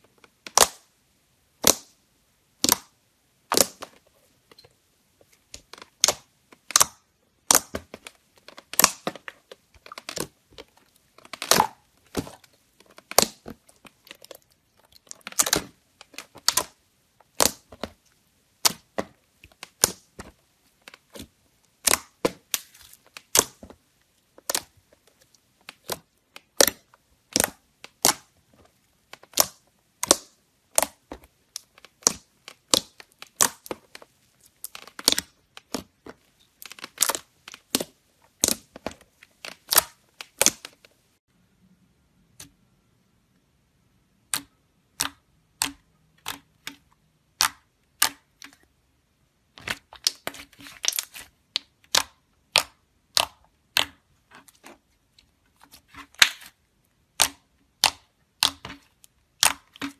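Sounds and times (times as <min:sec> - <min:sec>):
slime popping and crackling: 0:01.6 - 0:01.9, 0:05.6 - 0:18.0, 0:18.6 - 0:23.7, 0:24.3 - 0:24.9, 0:25.6 - 0:28.3, 0:29.0 - 0:40.8, 0:57.1 - 0:59.9
hands squishing slime: 0:02.6 - 0:04.6, 0:05.3 - 0:40.8, 0:44.2 - 0:48.8, 0:49.5 - 0:59.9.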